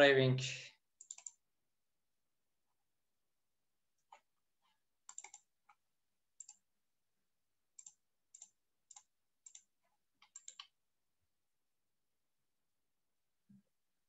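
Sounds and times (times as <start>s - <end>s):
computer mouse clicks: 1.0s - 1.4s, 4.0s - 5.8s, 6.4s - 6.6s, 7.8s - 10.8s.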